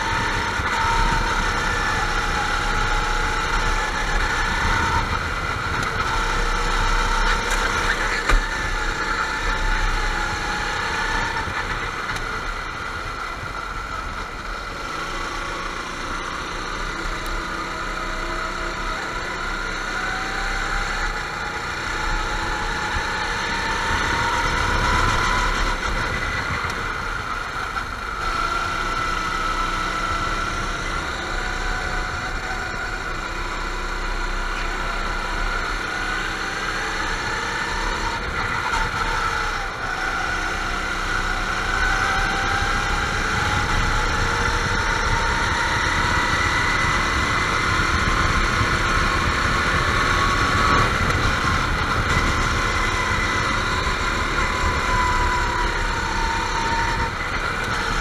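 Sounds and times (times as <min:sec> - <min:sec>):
go-kart engines racing: 0:00.0 - 0:58.0.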